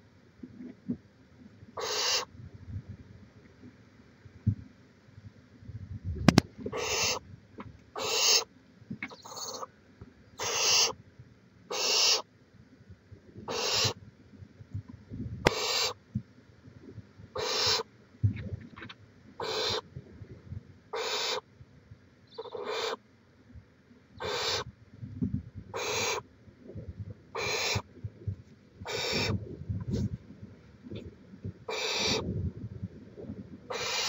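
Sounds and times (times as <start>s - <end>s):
owl chicks hissing screeches: 1.8s - 2.3s, 6.7s - 7.2s, 8.0s - 8.5s, 9.1s - 9.7s, 10.4s - 11.0s, 11.7s - 12.2s, 13.5s - 14.0s, 15.5s - 16.0s, 17.4s - 17.9s, 19.4s - 19.8s, 20.9s - 21.4s, 22.3s - 23.0s, 24.2s - 24.7s, 25.7s - 26.2s, 27.4s - 27.9s, 28.8s - 30.1s, 31.7s - 32.2s, 33.7s - 34.0s.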